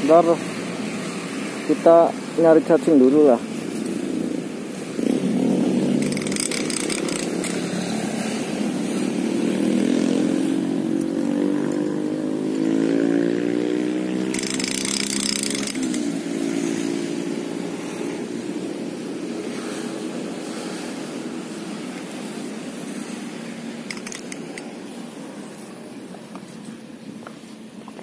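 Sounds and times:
small vehicle engine passing: 4.0s - 24.8s.

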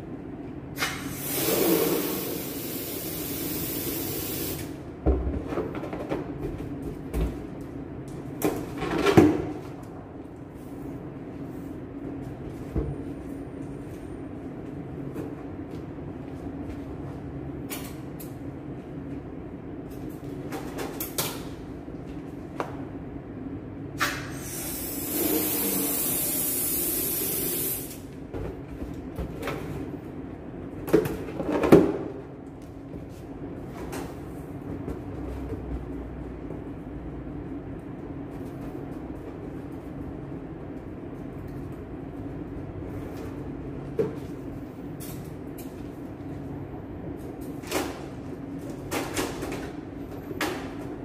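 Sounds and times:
helium hissing into balloon: 1.1s - 4.6s, 24.4s - 27.9s.

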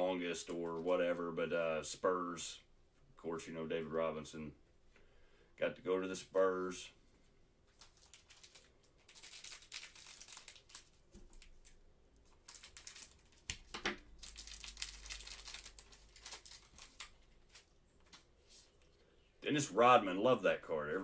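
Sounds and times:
wrapper crinkling and tearing: 7.7s - 17.7s.

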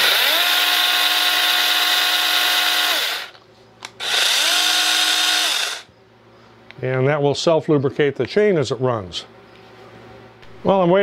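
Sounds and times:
electric chainsaw whining: 0.0s - 3.4s, 4.0s - 5.9s.

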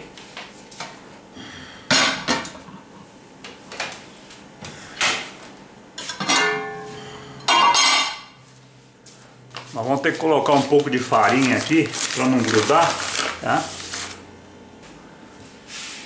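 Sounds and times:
metal lid ringing: 6.2s - 6.9s.

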